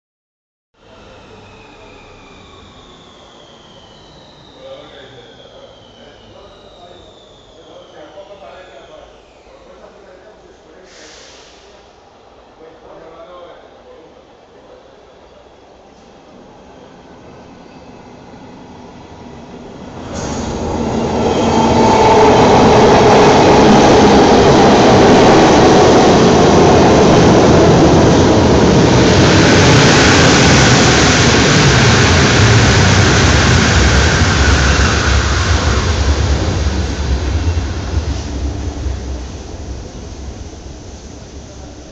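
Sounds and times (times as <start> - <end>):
train brakes squealing: 0.8 - 11.8, 19.8 - 25.4
train wheels rumbling on rails: 18.8 - 41.9.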